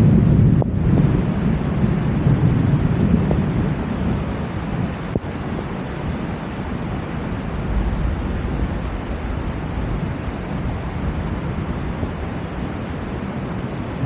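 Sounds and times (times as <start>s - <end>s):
heavy rain hissing: 0.0s - 14.0s
low rumble: 7.0s - 12.6s.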